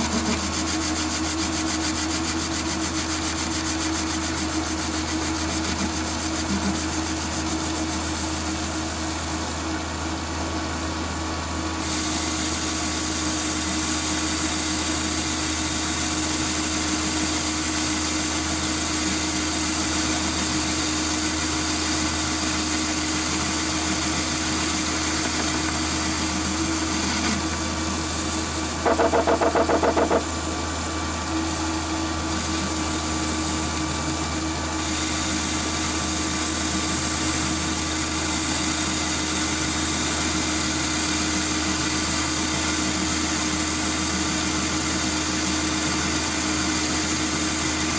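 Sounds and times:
metal lathe cutting: 22.0 - 30.4
rapid rattle: 28.8 - 30.3.

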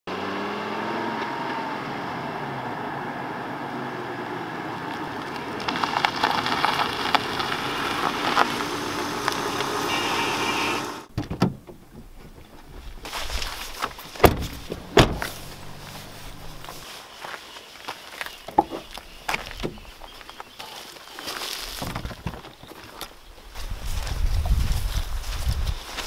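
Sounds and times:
car engine and tyre noise: 0.1 - 26.0
rustling: 11.7 - 26.0.

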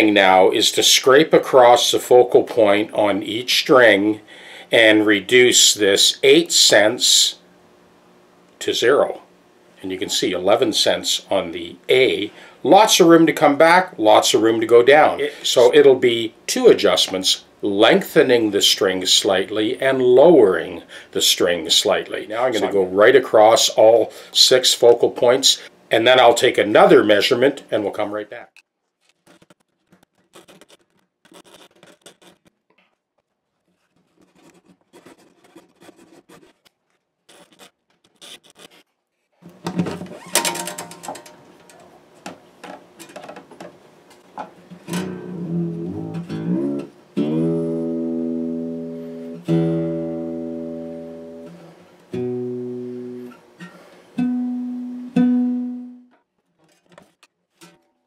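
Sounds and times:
guitar strings plucked: 44.8 - 56.1.

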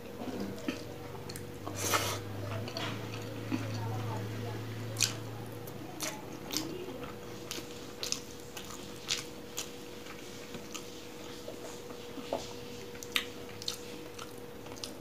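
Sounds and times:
close-up chewing: 0.0 - 15.0.

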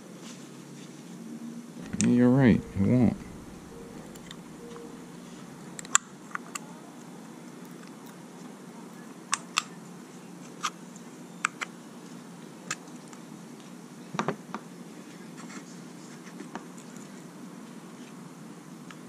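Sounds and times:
steady low hum: 1.8 - 5.6.

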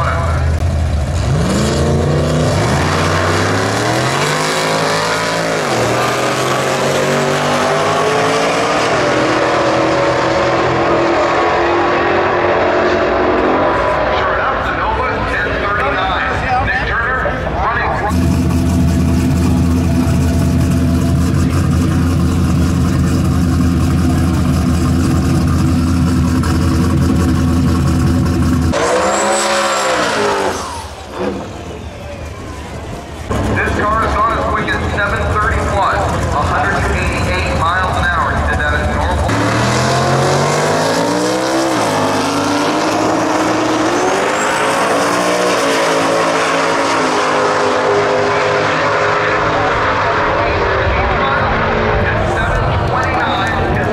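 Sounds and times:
engine revving: 0.0 - 15.8, 18.0 - 31.6, 33.3 - 53.9
drag race cars accelerating: 0.0 - 53.9
car engine idling: 17.2 - 28.7.

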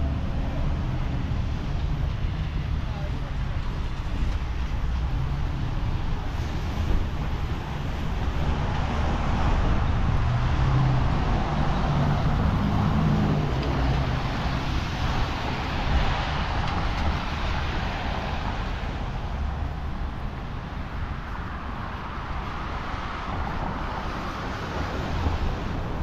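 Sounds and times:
steady street hiss: 0.0 - 26.0
vehicle passing: 3.8 - 20.6.

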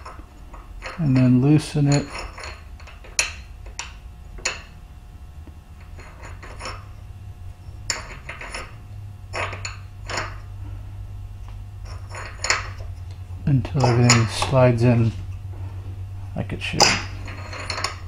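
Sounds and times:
low hum: 0.0 - 18.0
metal-on-metal clinks: 13.6 - 14.6, 16.8 - 18.0.

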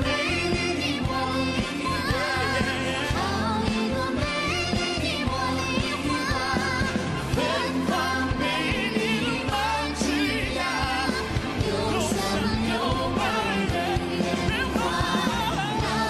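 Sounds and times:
pop music with singing: 0.0 - 16.0.

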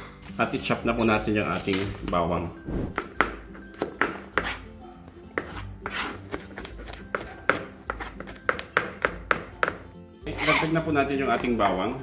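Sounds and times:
knife chopping on plastic board: 5.4 - 9.8.

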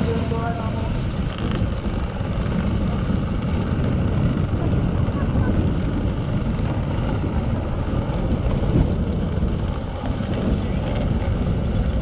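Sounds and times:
motocross bike engines: 0.0 - 12.0
wind buffeting microphone: 0.0 - 12.0.

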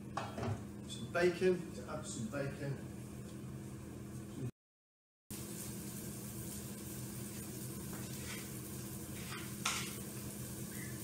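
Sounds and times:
onion and bacon sizzling in pan: 5.3 - 11.0.

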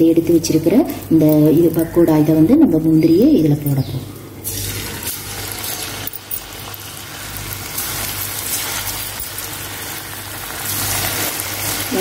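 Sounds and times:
hot oil sizzling: 4.4 - 12.0.

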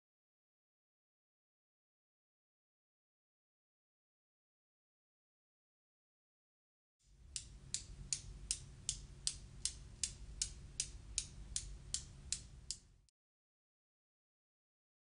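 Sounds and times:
steel balls clicking: 7.3 - 12.9.

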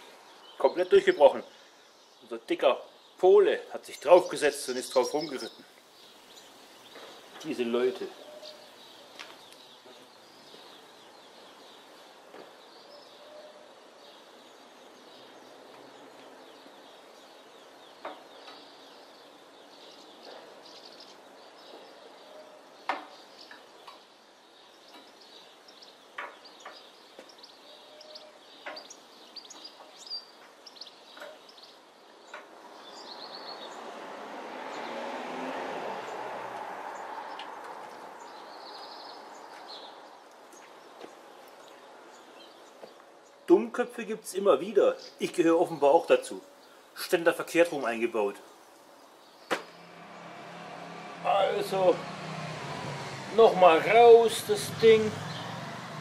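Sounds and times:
birds chirping: 0.0 - 56.0
rushing noise: 49.6 - 56.0.

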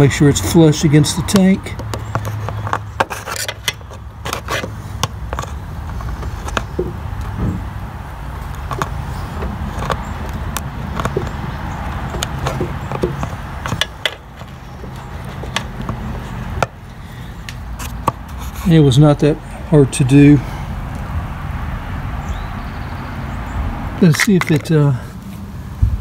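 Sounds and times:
screwdriver clicks and scrapes: 1.3 - 7.4, 8.5 - 16.8, 17.4 - 18.6.

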